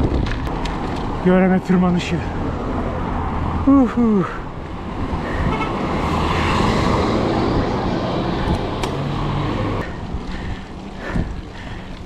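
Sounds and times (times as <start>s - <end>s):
road noise: 0.0s - 12.0s
rushing wind: 0.0s - 12.0s.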